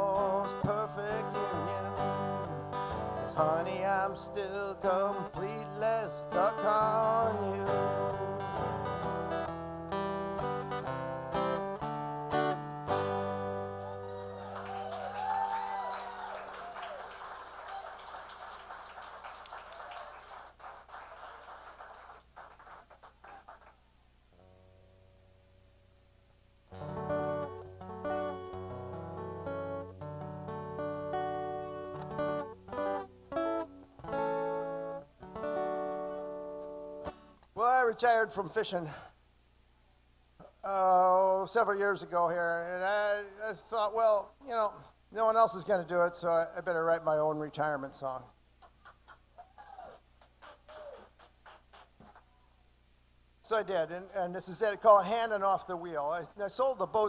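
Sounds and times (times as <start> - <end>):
acoustic guitar strumming: 0.0 - 14.4, 24.4 - 25.9, 26.7 - 37.4
applause: 13.8 - 23.8, 48.8 - 52.3.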